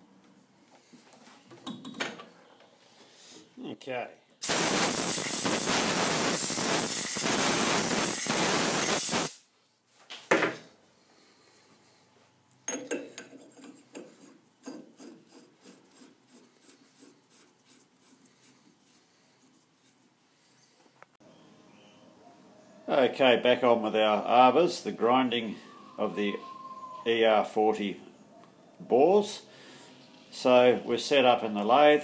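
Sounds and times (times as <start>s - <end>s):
compressed air blow gun hissing: 4.4s - 9.4s.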